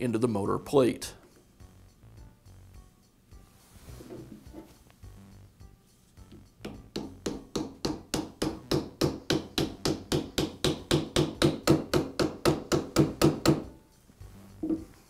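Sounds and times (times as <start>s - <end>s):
rubber mallet tapping metal shaft: 6.2s - 13.7s.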